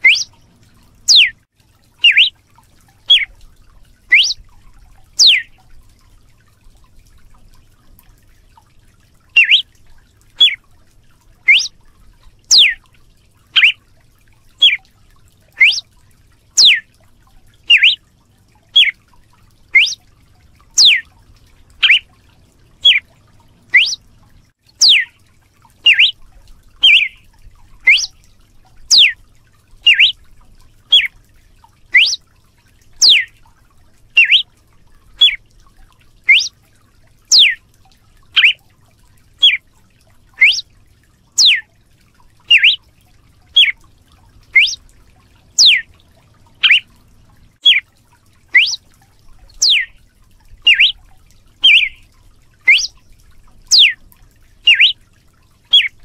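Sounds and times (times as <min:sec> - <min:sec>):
bird whip call: 0:00.0 - 0:00.3, 0:01.1 - 0:01.4, 0:02.0 - 0:02.3, 0:03.1 - 0:03.3, 0:04.1 - 0:04.4, 0:05.2 - 0:05.5, 0:09.4 - 0:09.6, 0:11.5 - 0:11.7, 0:12.5 - 0:12.8, 0:13.6 - 0:13.8, 0:14.6 - 0:14.8, 0:15.6 - 0:15.8, 0:16.6 - 0:16.8, 0:17.7 - 0:18.0, 0:18.8 - 0:19.0, 0:19.8 - 0:20.0, 0:20.8 - 0:21.0, 0:21.8 - 0:22.0, 0:22.8 - 0:23.0, 0:23.7 - 0:24.0, 0:24.8 - 0:25.1, 0:25.8 - 0:26.1, 0:26.8 - 0:27.2, 0:27.9 - 0:28.1, 0:28.9 - 0:29.2, 0:29.8 - 0:30.1, 0:30.9 - 0:31.1, 0:31.9 - 0:32.2, 0:33.0 - 0:33.3, 0:34.2 - 0:34.5, 0:36.3 - 0:36.5, 0:37.3 - 0:37.6, 0:38.4 - 0:38.6, 0:40.4 - 0:40.6, 0:41.4 - 0:41.6, 0:42.5 - 0:42.8, 0:43.6 - 0:43.8, 0:44.6 - 0:44.8, 0:45.6 - 0:45.8, 0:46.6 - 0:46.9, 0:47.6 - 0:47.8, 0:48.6 - 0:48.8, 0:49.6 - 0:49.9, 0:50.7 - 0:51.0, 0:51.6 - 0:52.0, 0:52.7 - 0:53.0, 0:53.7 - 0:54.0, 0:54.7 - 0:55.0, 0:55.7 - 0:55.9.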